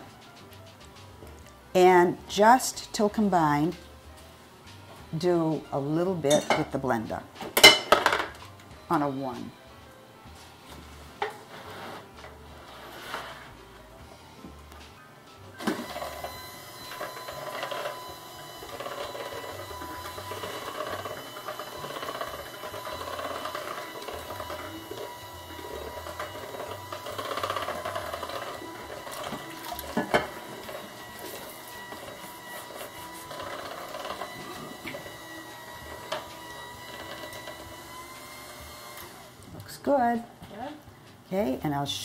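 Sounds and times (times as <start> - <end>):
electric hand mixer whining: 15.5 - 39.6.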